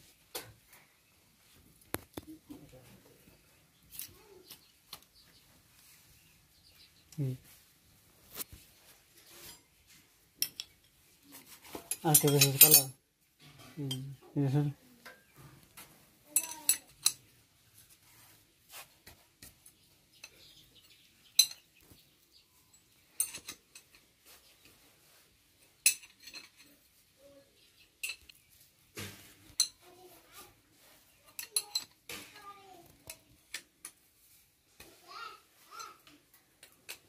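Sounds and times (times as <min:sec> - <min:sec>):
spanners clinking on metal: 0:10.4 - 0:11.0, 0:11.8 - 0:14.2, 0:16.3 - 0:17.3, 0:21.4 - 0:21.7, 0:22.7 - 0:24.0, 0:25.8 - 0:26.7, 0:28.0 - 0:28.4, 0:31.3 - 0:32.5.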